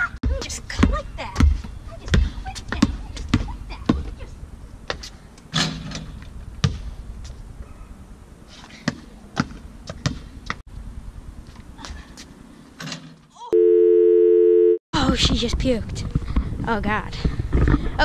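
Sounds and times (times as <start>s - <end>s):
basketball bouncing on stone: 0.2s - 4.1s.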